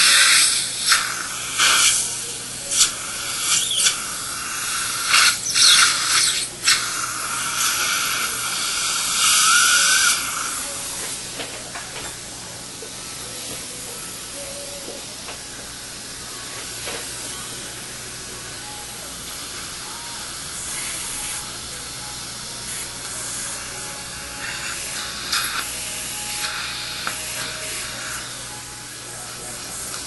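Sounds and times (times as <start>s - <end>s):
steady hiss: 0.0s - 11.6s.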